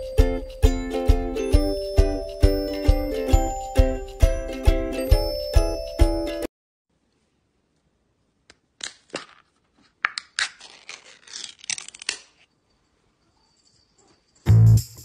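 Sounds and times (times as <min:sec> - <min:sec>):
sharp clicks and rasping scrapes: 0:10.2 - 0:12.5.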